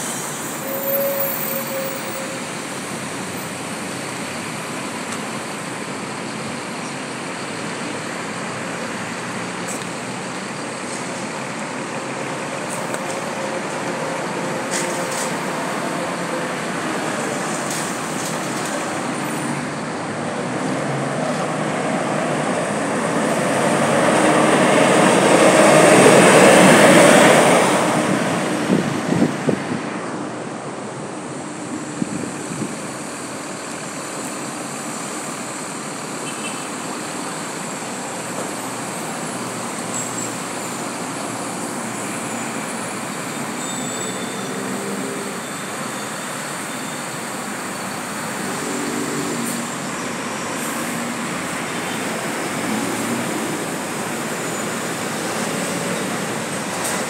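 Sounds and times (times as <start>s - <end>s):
steady traffic hum: 0.0s - 57.0s
heavy vehicle passing: 12.0s - 30.2s.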